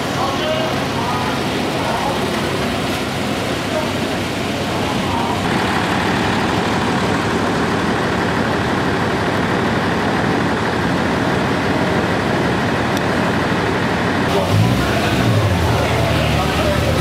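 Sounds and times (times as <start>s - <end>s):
vehicle engine running: 0.0s - 17.0s.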